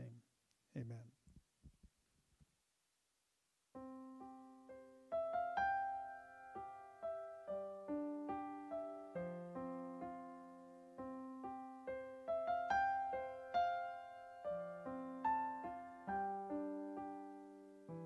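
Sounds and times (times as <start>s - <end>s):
gentle solo piano: 3.8s - 18.0s.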